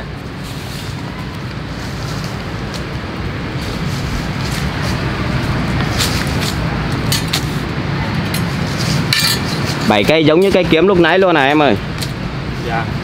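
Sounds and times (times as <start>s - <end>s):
low outdoor rumble: 0.0s - 13.0s
steel swords clinking: 9.1s - 9.5s.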